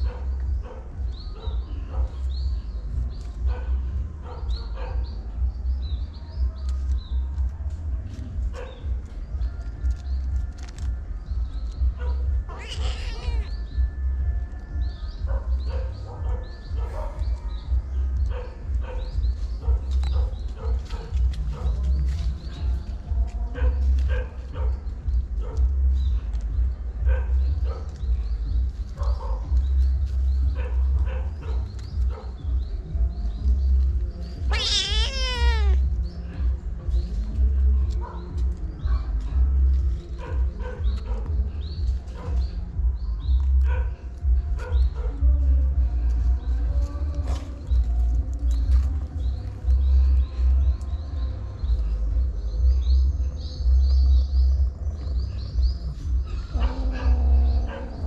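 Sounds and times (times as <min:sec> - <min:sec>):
low uneven rumble: 0:00.0 - 0:58.0
short animal cries: 0:12.5 - 0:13.5, 0:34.5 - 0:35.8.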